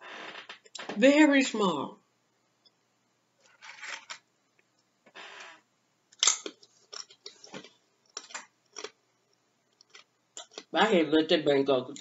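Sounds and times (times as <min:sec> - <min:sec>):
chewing crunchy chips: 0:06.9 - 0:09.0, 0:09.7 - 0:10.7.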